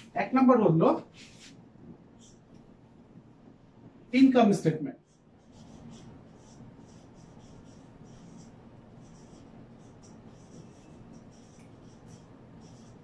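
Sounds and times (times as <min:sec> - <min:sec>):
marker squeaking on whiteboard: 0:05.1 - 0:13.0.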